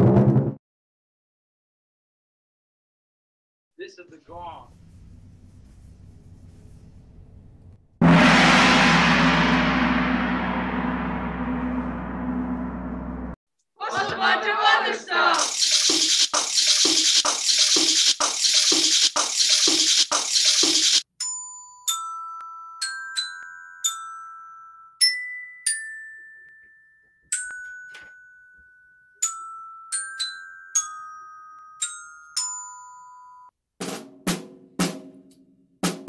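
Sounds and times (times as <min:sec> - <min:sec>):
drum kit: 0:08.0 - 0:13.4, 0:33.8 - 0:36.0
shakers in steady rhythm: 0:15.4 - 0:21.0
glockenspiel melody: 0:21.2 - 0:33.5.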